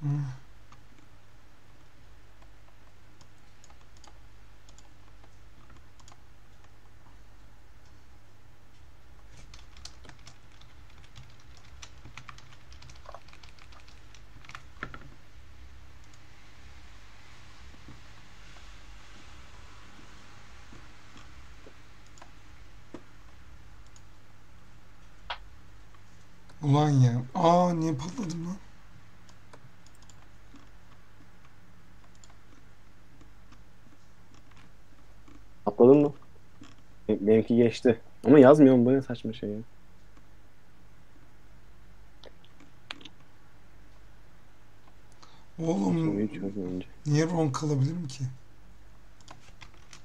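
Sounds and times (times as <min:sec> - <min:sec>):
low steady hum: 0:00.0 - 0:50.0
computer keyboard typing: 0:02.8 - 0:06.7, 0:09.2 - 0:15.1, 0:29.8 - 0:30.7, 0:32.0 - 0:32.6.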